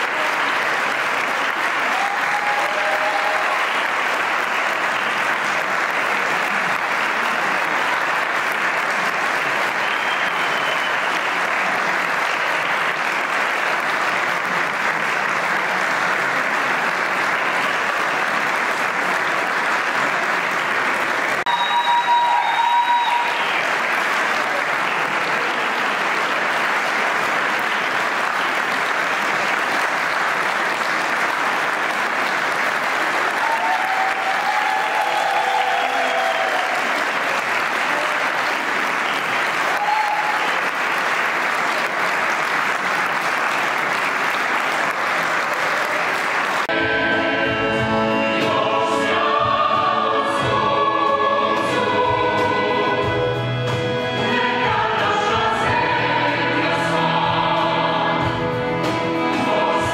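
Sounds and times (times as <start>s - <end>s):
audience applauding: 0.0s - 46.8s.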